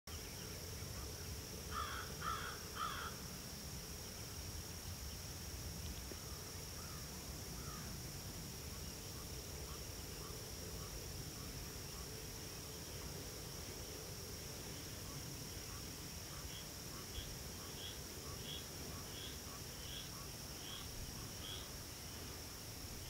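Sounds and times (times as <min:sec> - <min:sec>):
high-pitched insect drone: 0:00.1 - 0:23.0
crow cawing: 0:01.7 - 0:03.2.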